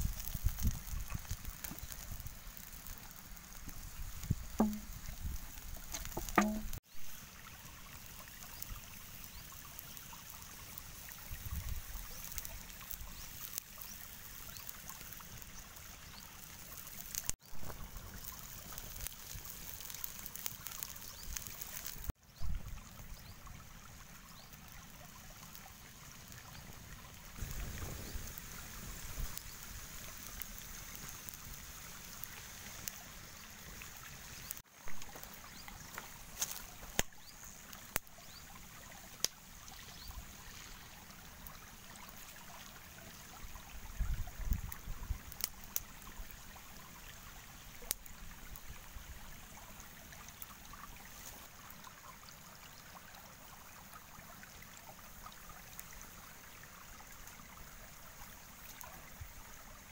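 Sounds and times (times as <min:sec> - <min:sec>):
wood fire crackling: 0:00.0 - 0:22.7, 0:24.5 - 0:43.6, 0:44.2 - 0:47.0, 0:47.7 - 0:48.7, 0:56.9 - 0:59.2
low thumps: 0:04.6 - 0:05.0.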